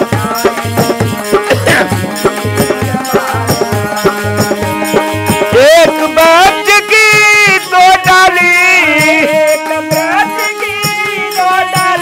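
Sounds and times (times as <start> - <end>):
hand drum beating rhythm: 0.0 - 12.0
harmonium chords: 0.0 - 12.0
person singing: 0.0 - 12.0.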